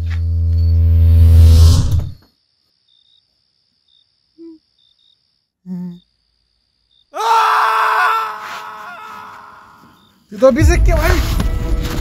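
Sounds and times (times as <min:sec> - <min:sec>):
faint crickets chirping: 0:02.0 - 0:10.8
person crying out loudly: 0:07.2 - 0:09.8.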